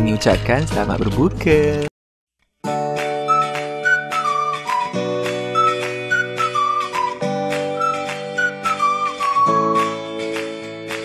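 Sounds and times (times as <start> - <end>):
flute-like melody over chords and beat: 3.0 - 10.3.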